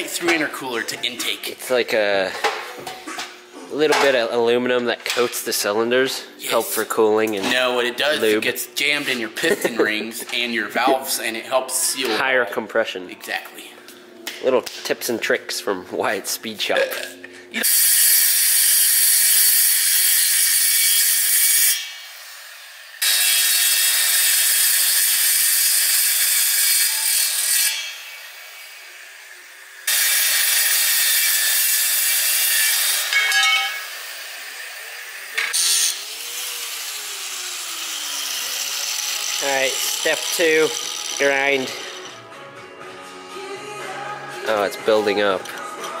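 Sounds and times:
circular saw cutting metal: 0:08.0 - 0:11.2, 0:17.6 - 0:42.2.

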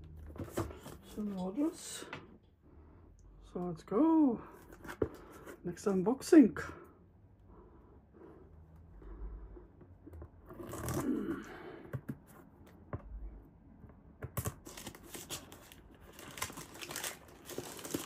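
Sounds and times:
plastic bag tearing and crinkling: 0:14.5 - 0:18.0.

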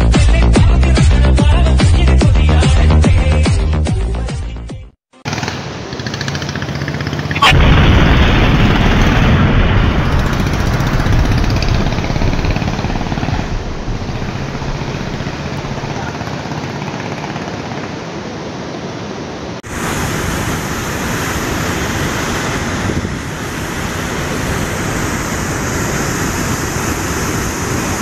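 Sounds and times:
waterfall rushing with deep rumble: 0:07.5 - 0:28.0.

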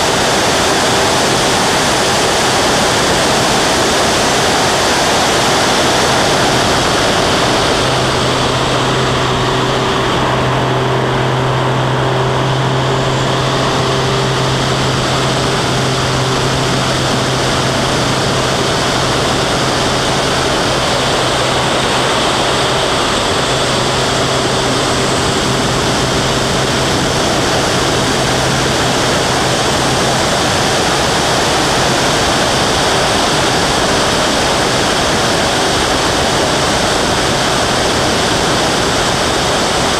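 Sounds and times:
loud wind rush: 0:00.0 - 0:39.9
plane engine droning: 0:00.0 - 0:39.9.

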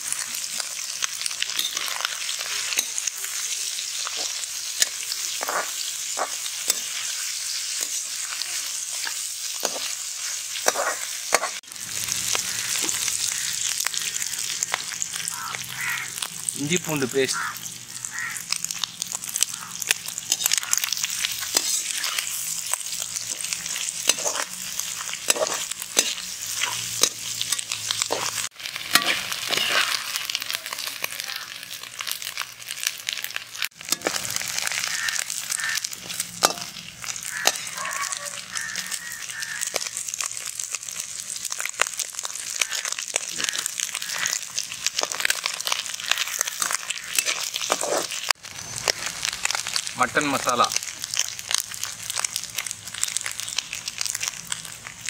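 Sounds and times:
liver sizzling in hot oil: 0:00.0 - 0:55.0
metal spatula scraping a pan: 0:04.1 - 0:08.3, 0:08.9 - 0:11.6, 0:20.2 - 0:30.8, 0:33.8 - 0:37.8, 0:46.1 - 0:48.3.

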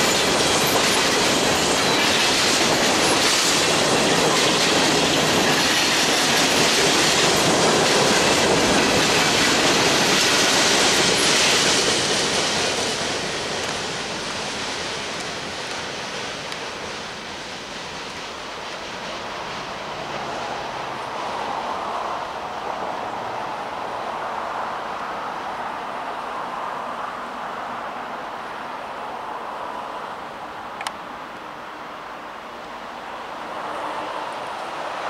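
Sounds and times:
steel wheels on rails: 0:00.0 - 0:21.9
freight train rolling past: 0:00.0 - 0:30.2, 0:32.6 - 0:35.0.

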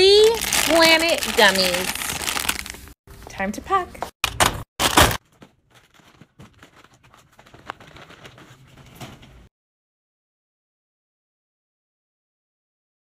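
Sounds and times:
plastic candy bags crinkling: 0:00.0 - 0:03.0, 0:05.7 - 0:09.2.

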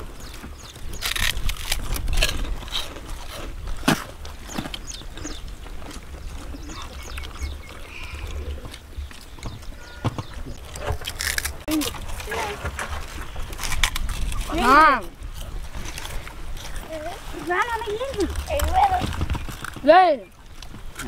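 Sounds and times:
people crunching fried snacks: 0:00.0 - 0:08.8, 0:11.0 - 0:12.6, 0:13.2 - 0:17.0
wind on microphone: 0:00.0 - 0:21.0.

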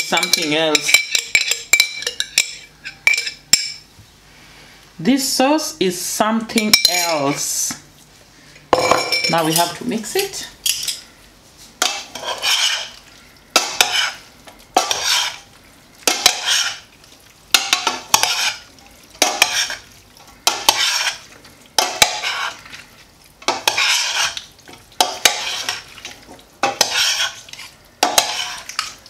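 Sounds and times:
spoon clinking against pot: 0:00.1 - 0:03.8
wet salad mixing strokes: 0:11.4 - 0:29.0.

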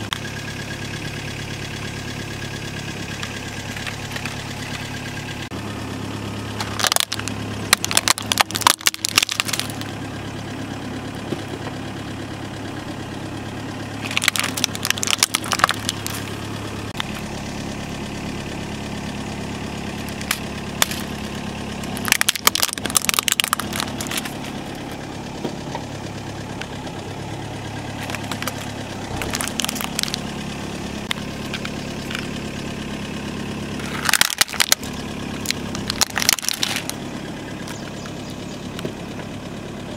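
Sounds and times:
car engine idling: 0:00.0 - 0:39.9
plastic toys cracking and crunching: 0:06.6 - 0:09.9, 0:14.0 - 0:16.4, 0:20.0 - 0:21.2, 0:21.8 - 0:25.0, 0:27.9 - 0:30.3, 0:31.0 - 0:32.3, 0:33.8 - 0:37.0.

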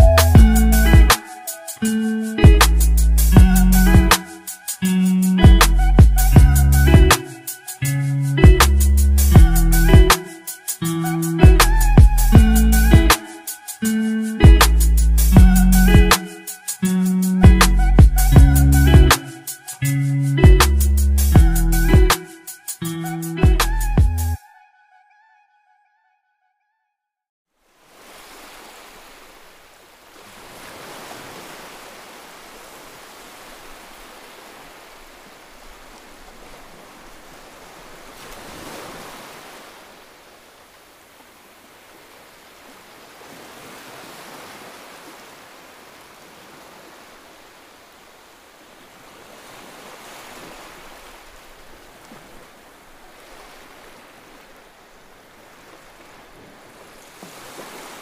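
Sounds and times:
sea surf breaking on a beach: 0:00.8 - 0:02.6, 0:04.1 - 0:05.6, 0:10.1 - 0:11.4, 0:13.1 - 0:14.4, 0:16.1 - 0:17.4, 0:27.6 - 0:58.0.

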